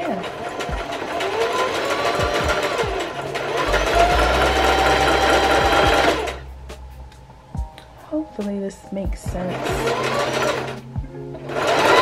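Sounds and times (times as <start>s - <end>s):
electric sewing machine running: 0.0s - 6.5s, 9.4s - 12.0s.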